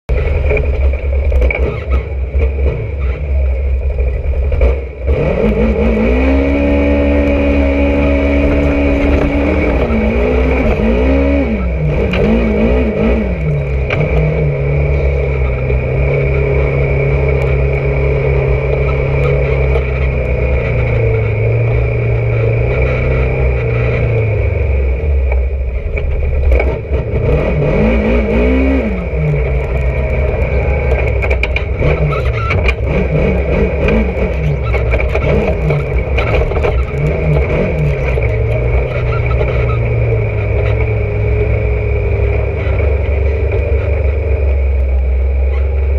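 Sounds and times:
engine revving: 0:00.1 - 0:45.9
heavy low rumble: 0:00.1 - 0:45.9
rattling: 0:28.5 - 0:41.0.

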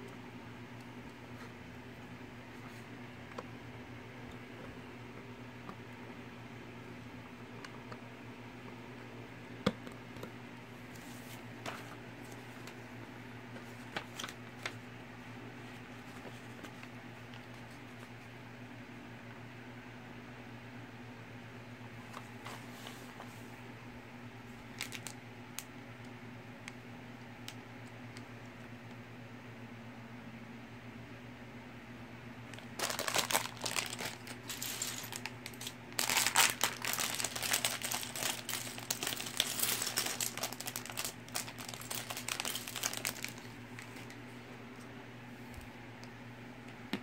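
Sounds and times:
low steady hum: 0:00.0 - 0:47.0
plastic blocks clattering: 0:32.6 - 0:43.5.

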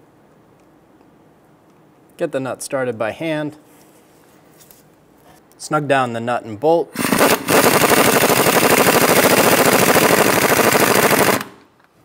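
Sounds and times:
impact wrench rattling: 0:07.0 - 0:11.5.

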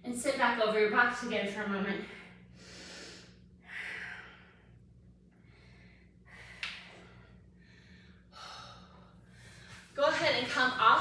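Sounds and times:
faint steady hum: 0:00.0 - 0:11.0
woman breathing heavily: 0:01.9 - 0:10.1.

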